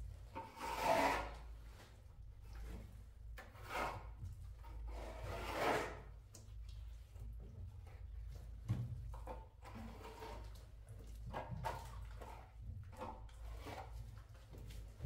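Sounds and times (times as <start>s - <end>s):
slow scraping strokes: 0.4s - 2.7s, 3.4s - 6.1s.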